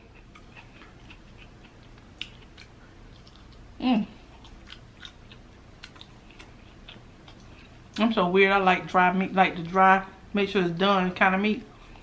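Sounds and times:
close chewing with mouth clicks: 0.0 - 8.1.

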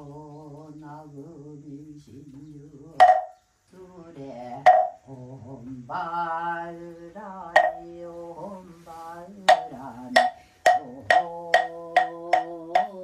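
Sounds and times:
monk chanting: 0.0 - 3.3, 4.1 - 6.7, 7.3 - 13.0
wooden fish strikes: 3.0 - 3.4, 4.6 - 5.0, 7.6 - 7.8, 9.5 - 13.0.

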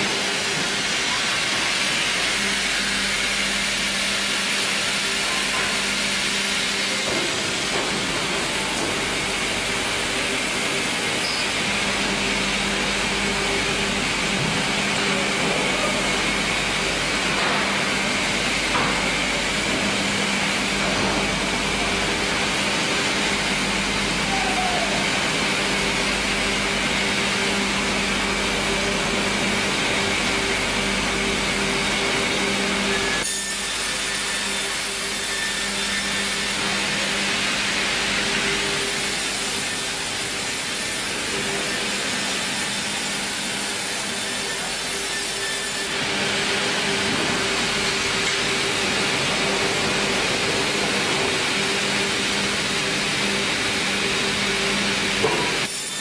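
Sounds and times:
band sawmill sawing a log: 25.0 - 56.0.

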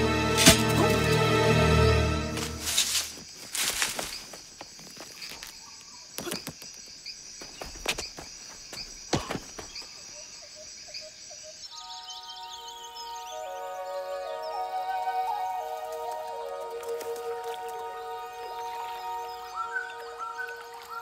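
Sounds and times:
music: 0.0 - 2.9, 12.8 - 21.0
insects chirring: 0.4 - 21.0
running footsteps on dirt: 2.4 - 10.2.

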